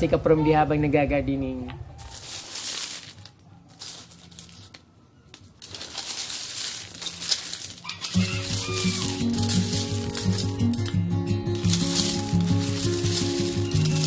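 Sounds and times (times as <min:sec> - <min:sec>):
hand trowel digging into gravel: 0:02.0 - 0:04.8, 0:05.6 - 0:14.0
stones clicking and scraping: 0:02.0 - 0:14.0
background music: 0:06.5 - 0:14.0.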